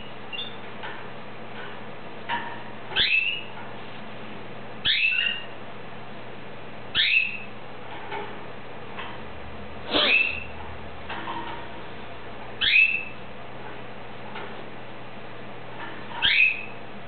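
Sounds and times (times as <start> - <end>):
faint bird chirps: 0.0 - 0.6, 3.0 - 3.5, 4.8 - 5.6, 6.9 - 7.5, 10.0 - 10.5, 12.6 - 13.2, 16.2 - 16.8
canary call: 3.0 - 3.5, 4.8 - 5.5, 7.0 - 7.5, 9.9 - 10.5, 12.6 - 13.2, 16.2 - 16.8.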